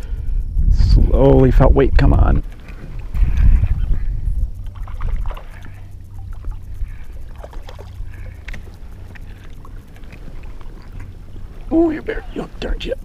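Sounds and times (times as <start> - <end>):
steady low rumble: 0.0 - 13.0
fish splashing at water surface: 4.7 - 11.1.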